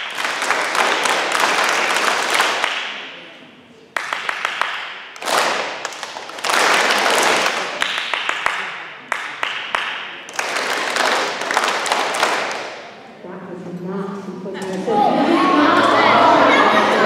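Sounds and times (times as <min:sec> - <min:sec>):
children clapping: 0:00.0 - 0:03.2, 0:03.9 - 0:13.0.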